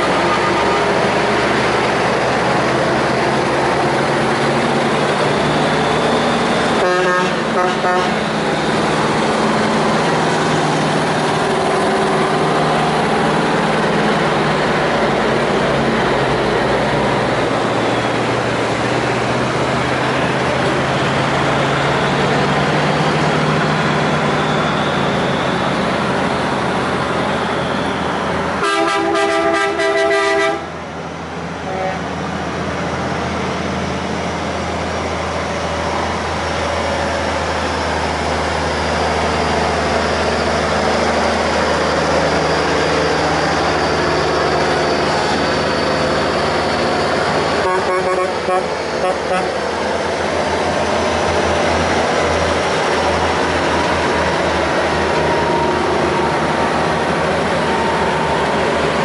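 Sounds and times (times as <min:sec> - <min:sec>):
heavy trucks driving past: 0:00.0 - 0:59.0
truck horn blast: 0:06.8 - 0:08.3, 0:28.6 - 0:30.8, 0:31.6 - 0:32.1, 0:47.6 - 0:49.6.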